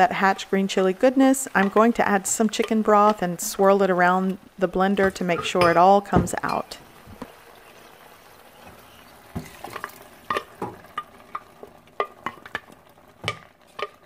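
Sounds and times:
food sizzling in pot: 0:00.0 - 0:14.0
liquid pouring: 0:06.9 - 0:13.8
sharp pops and crackles: 0:09.3 - 0:14.0.

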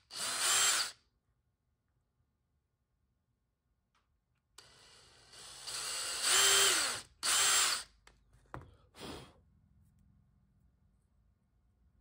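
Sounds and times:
cordless drill whining: 0:00.0 - 0:01.0, 0:04.6 - 0:07.9.

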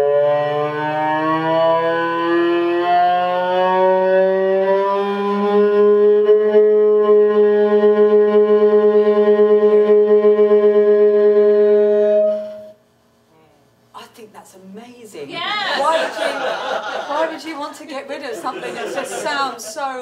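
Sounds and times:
cello bowed note wobbling: 0:05.6 - 0:12.8.

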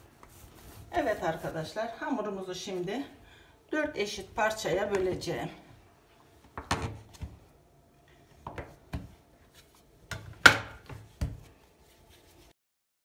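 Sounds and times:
soft handling of dough: 0:00.0 - 0:10.1, 0:10.8 - 0:12.5
dough scraper knocking on countertop: 0:10.1 - 0:11.5.

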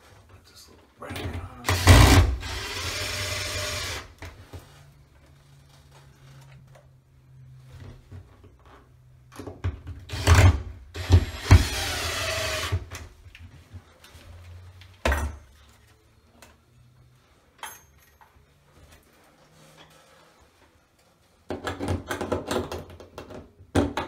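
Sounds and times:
power drill driving screw: 0:01.7 - 0:04.1, 0:10.1 - 0:12.9.

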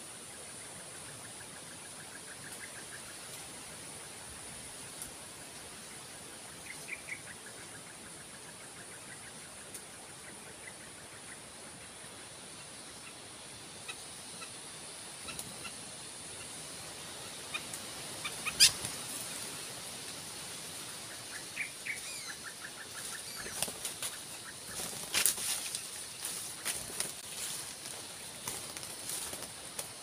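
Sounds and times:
high insect drone: 0:00.0 - 0:30.0
dove flapping wings: 0:23.4 - 0:24.1, 0:28.4 - 0:30.0.

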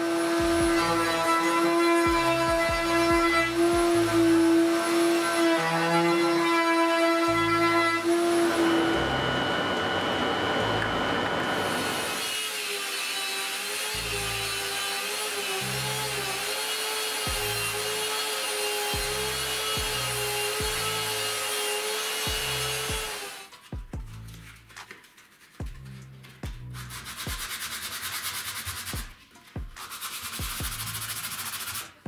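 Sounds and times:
belt sander whining: 0:07.2 - 0:12.3.

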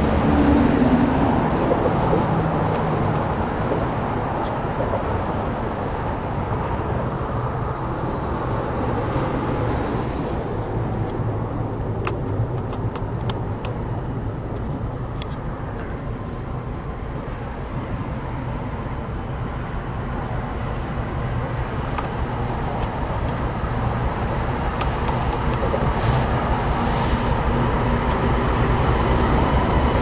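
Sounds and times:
diesel locomotives passing: 0:00.0 - 0:30.0
brief hiss: 0:26.0 - 0:27.5.

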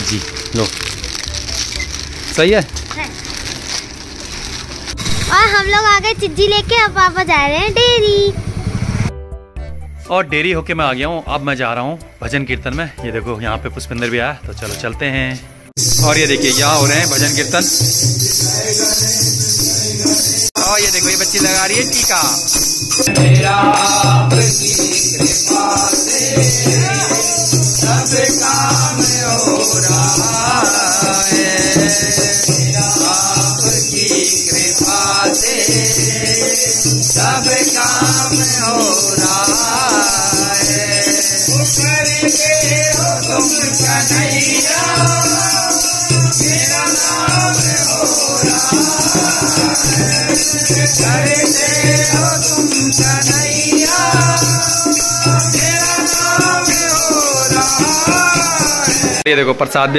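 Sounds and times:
jingling hand percussion: 0:00.0 - 0:08.6, 0:15.8 - 0:59.3
voices singing devotional song: 0:10.1 - 0:59.9.

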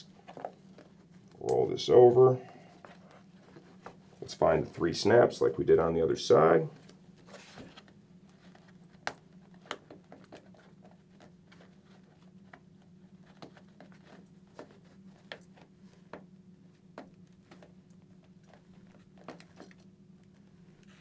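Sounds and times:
steady low hum: 0:00.0 - 0:21.0
fabric and plastic rustling: 0:06.7 - 0:16.0.

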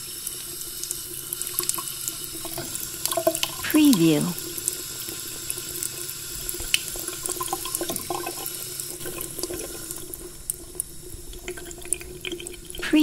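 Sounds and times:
tap running into basin: 0:00.2 - 0:03.6, 0:04.4 - 0:12.8.

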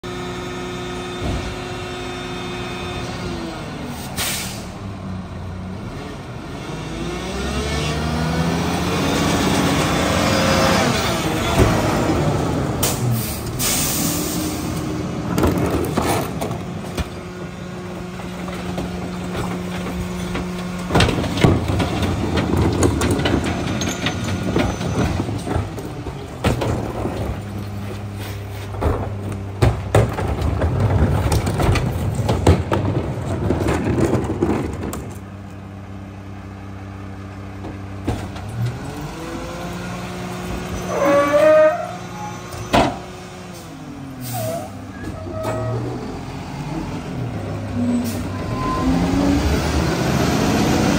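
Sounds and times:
diesel engine running: 0:08.0 - 0:50.9
hydraulic packer crushing trash: 0:08.8 - 0:35.6
bins knocking against hopper: 0:18.2 - 0:27.8, 0:28.7 - 0:35.2
brief squeal: 0:47.9 - 0:49.2.

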